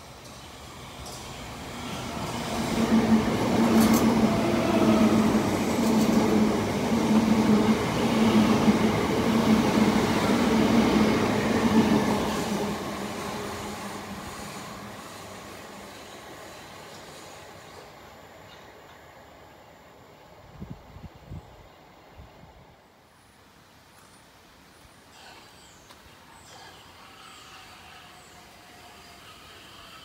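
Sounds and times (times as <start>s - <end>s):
train wheels rumbling on rail: 0.0s - 17.9s.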